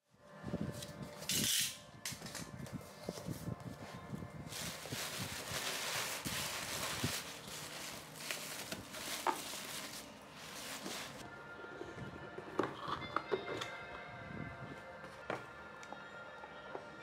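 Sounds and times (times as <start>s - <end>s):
packing paper rustling: 3.0s - 11.2s.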